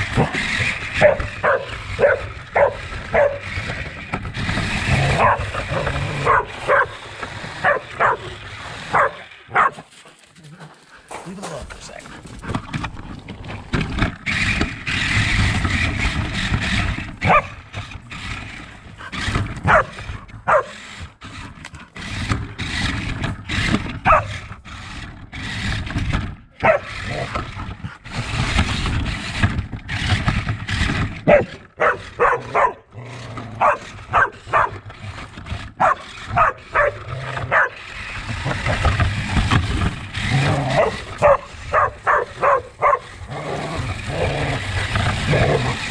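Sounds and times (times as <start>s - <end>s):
dog barking and yipping: 0.9s - 3.6s, 5.0s - 10.2s, 17.2s - 17.6s, 19.1s - 20.9s, 24.0s - 24.4s, 26.6s - 27.3s, 31.2s - 32.9s, 33.6s - 34.8s, 35.8s - 38.8s, 40.6s - 43.2s.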